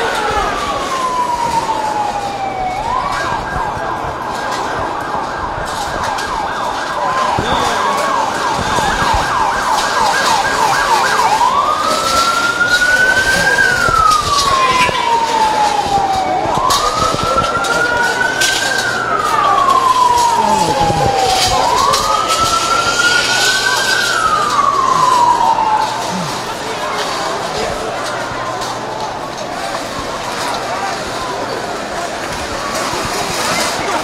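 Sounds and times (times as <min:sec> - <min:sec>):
emergency siren wailing and yelping: 0:00.0 - 0:34.0
street commotion: 0:00.0 - 0:34.0.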